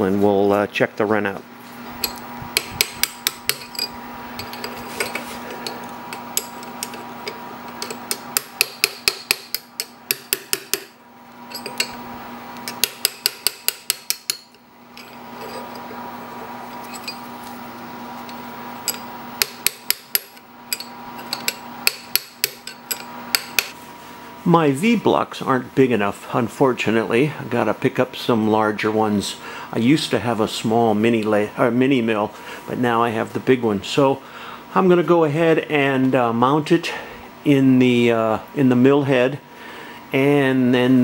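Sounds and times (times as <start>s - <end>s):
hammer tapping metal: 2.0s - 4.7s, 7.8s - 12.0s, 12.6s - 15.6s, 18.9s - 23.8s.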